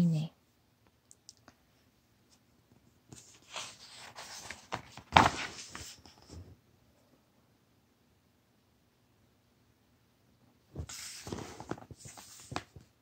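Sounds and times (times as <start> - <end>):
paper page rustling: 3.1 - 6.4, 10.8 - 12.9
sharp flap of page: 3.4 - 6.0, 10.8 - 12.8.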